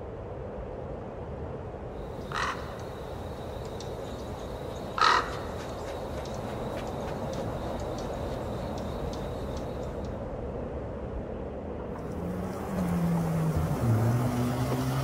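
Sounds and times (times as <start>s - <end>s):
outdoor background: 0.0s - 15.0s
crow cawing: 2.2s - 3.2s, 4.1s - 7.4s.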